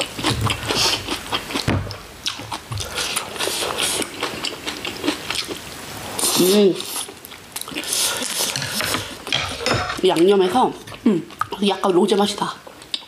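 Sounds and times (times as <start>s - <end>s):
chewing and mouth smacking: 0.0s - 5.6s, 6.2s - 9.4s, 10.2s - 11.8s.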